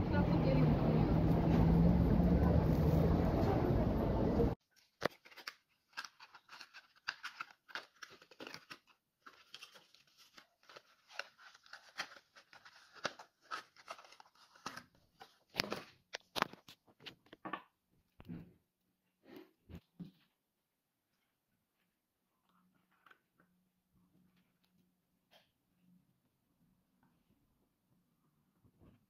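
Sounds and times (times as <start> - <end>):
cardboard and sticks rustling: 4.6 - 17.3.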